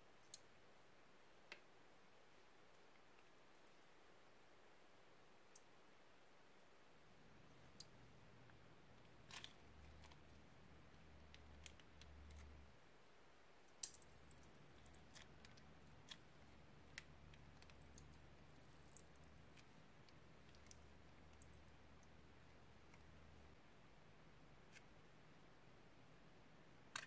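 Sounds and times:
faint low hum: 0.0s - 27.0s
sticky slime clicks and crackles: 13.7s - 16.3s.

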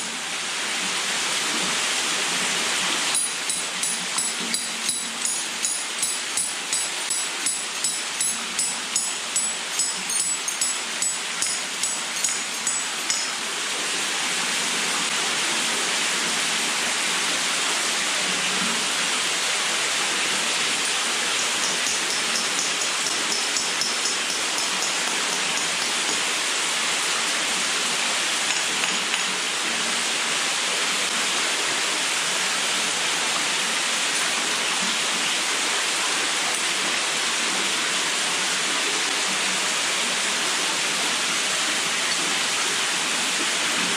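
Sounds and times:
hammer ringing on steel bolt: 3.2s - 13.4s, 20.9s - 26.2s.

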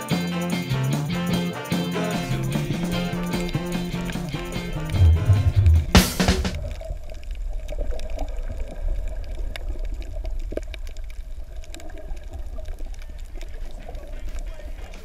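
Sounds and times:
underwater rumble of moving water: 2.2s - 15.0s
faint clicks: 6.7s - 15.0s.

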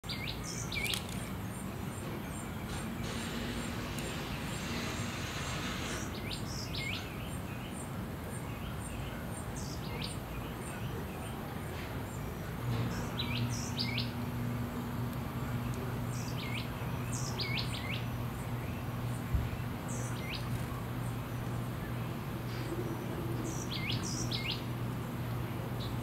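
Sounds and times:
outdoor hiss: 0.0s - 26.0s
songbirds chirping: 0.0s - 26.0s
low hum: 11.9s - 26.0s.

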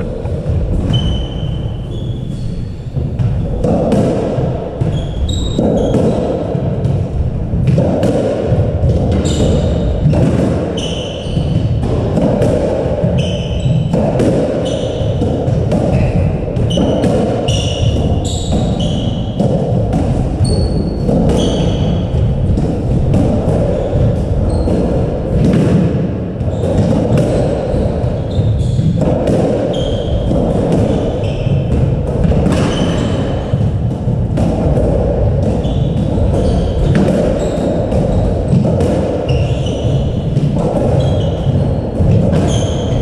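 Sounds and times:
shoe squeaks on wooden floor: 0.9s - 3.6s, 4.9s - 6.2s, 10.8s - 11.6s, 13.2s - 13.9s, 14.6s - 15.2s, 15.9s - 19.4s, 20.4s - 22.0s, 27.4s - 29.0s, 29.7s - 30.3s, 39.3s - 43.0s.

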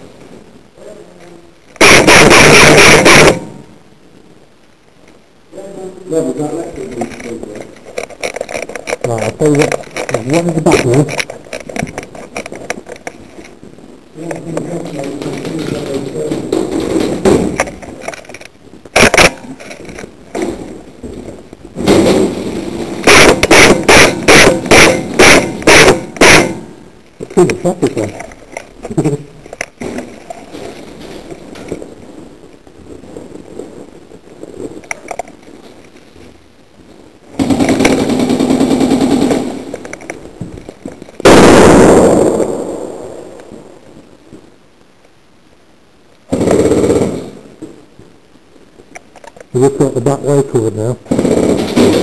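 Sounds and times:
low rough noise: 0.0s - 52.0s
airsoft gun shots: 1.8s - 3.6s, 19.0s - 19.5s, 21.8s - 26.7s
very loud bang: 1.8s - 3.6s, 15.2s - 17.8s, 21.8s - 26.7s, 41.2s - 43.1s, 51.1s - 52.0s.

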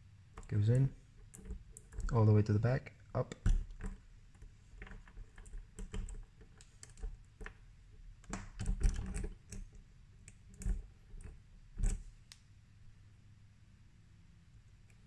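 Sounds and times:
metal clicks and scrapes in a lock: 0.4s - 2.2s, 8.2s - 12.1s.

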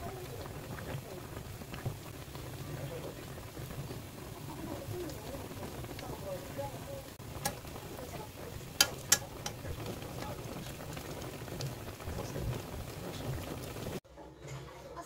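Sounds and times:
sauce simmering and bubbling: 0.0s - 14.0s
metal spoon clicking on pan: 7.4s - 7.6s, 8.8s - 9.6s.

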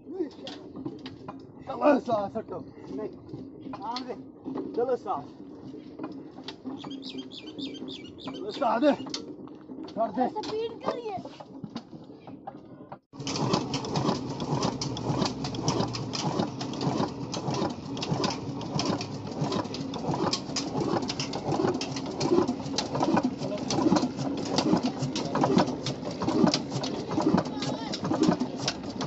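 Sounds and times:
diesel engine knocking: 13.2s - 29.0s.

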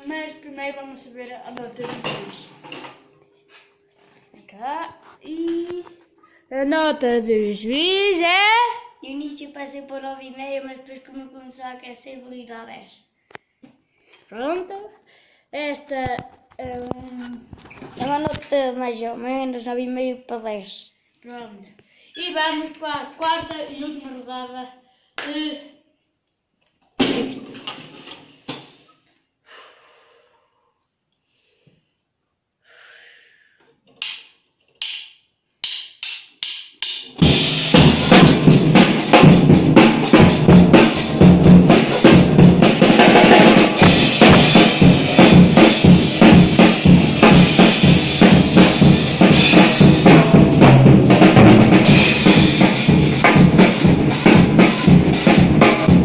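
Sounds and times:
acoustic drum kit playing: 1.6s - 3.1s, 27.0s - 28.2s, 35.6s - 56.0s
cymbals crashing: 36.9s - 56.0s.

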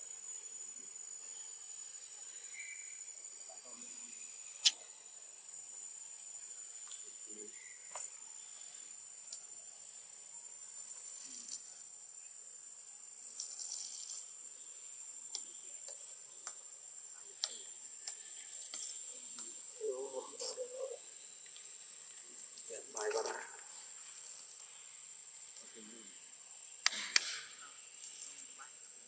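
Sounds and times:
faint hiss: 0.0s - 29.0s
high-pitched insect drone: 0.0s - 29.0s
short sharp clicks: 4.6s - 4.8s, 26.8s - 27.5s.

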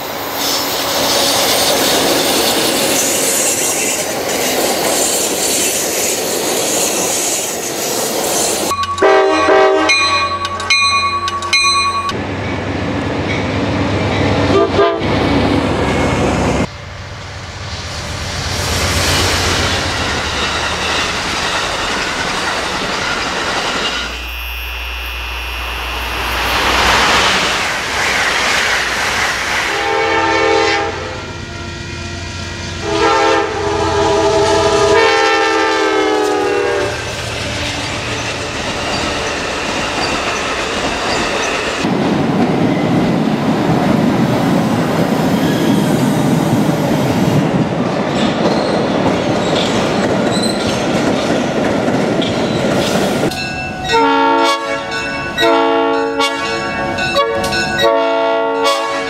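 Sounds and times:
trains passing on rails: 0.0s - 59.0s
locomotive air horn blasts: 8.8s - 10.5s, 14.5s - 15.1s, 29.7s - 31.4s, 32.8s - 37.1s, 53.9s - 59.0s.

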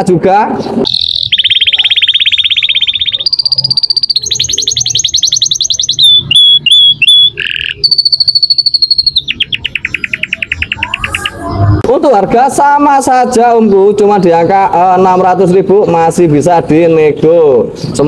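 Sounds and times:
canary singing trills: 0.6s - 11.8s.

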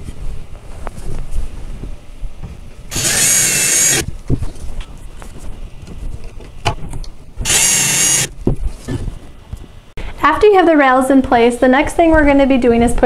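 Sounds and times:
cordless drill whining: 2.9s - 4.1s, 7.4s - 8.4s.

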